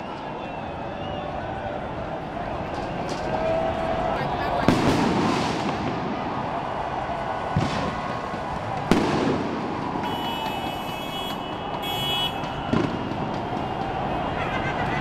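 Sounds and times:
street din: 0.0 - 15.0
fireworks bangs: 4.5 - 14.3.

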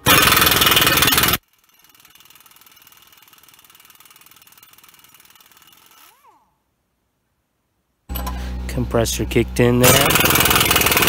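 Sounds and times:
air compressor running: 0.0 - 1.4, 8.1 - 11.0
pneumatic impact wrench burst: 0.0 - 2.3, 9.8 - 11.0
rising and falling whine: 8.1 - 10.5.

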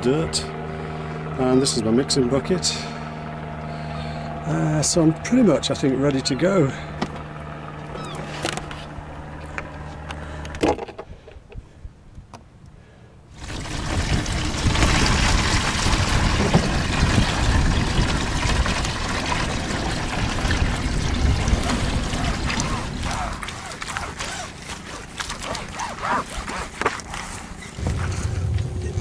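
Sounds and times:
low hum: 11.4 - 29.0
water pouring into plastic bucket: 13.3 - 24.0.

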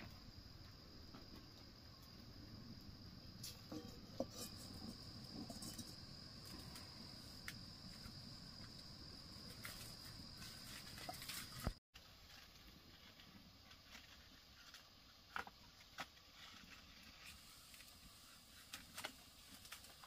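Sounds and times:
insects trilling: 0.0 - 11.8.

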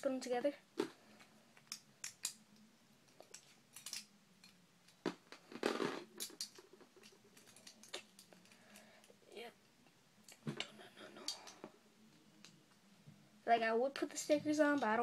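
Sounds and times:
toy parts clicking together: 1.6 - 2.4, 3.1 - 4.6, 6.2 - 8.4.

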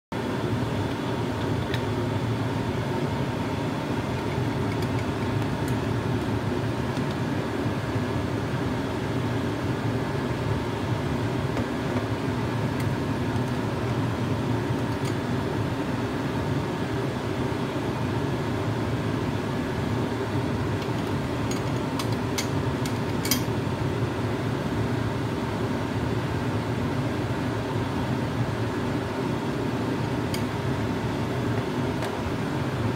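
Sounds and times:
fan humming: 0.1 - 32.9.

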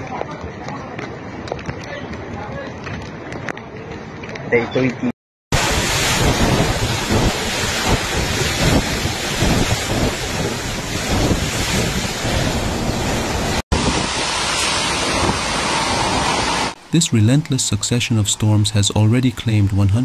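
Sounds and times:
strong wind gusts: 5.5 - 16.8
driving rain: 5.5 - 20.0.

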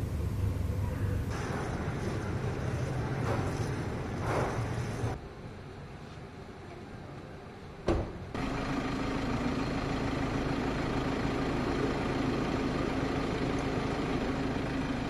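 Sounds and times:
machine humming with low drone: 0.0 - 5.2.

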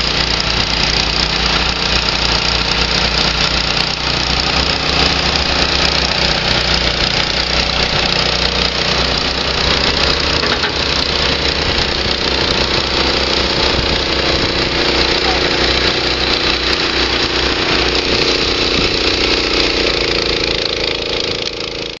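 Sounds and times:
diesel engine running steadily: 0.0 - 22.0.

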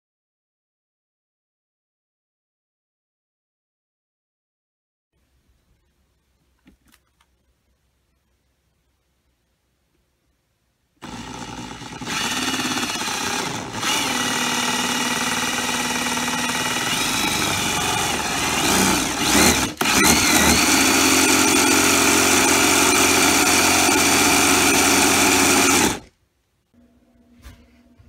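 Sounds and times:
electric motor whining: 11.0 - 26.1.

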